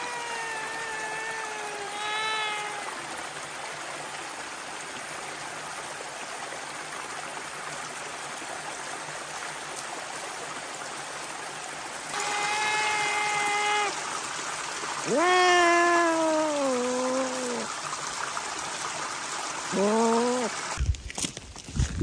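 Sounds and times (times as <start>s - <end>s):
cat meowing: 0.0s - 3.0s, 12.2s - 14.0s, 15.0s - 17.7s
stream over rocks: 0.0s - 22.0s.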